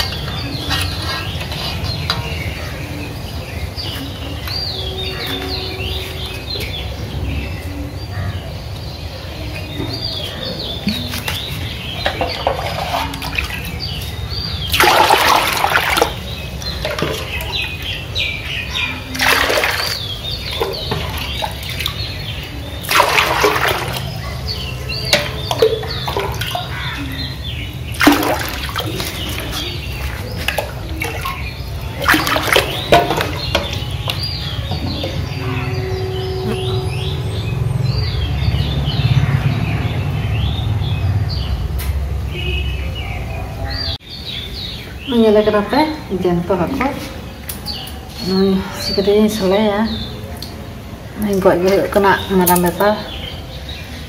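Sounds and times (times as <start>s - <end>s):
birds chirping: 0.0s - 54.0s
fish splashing in water: 10.7s - 18.2s, 19.0s - 34.7s.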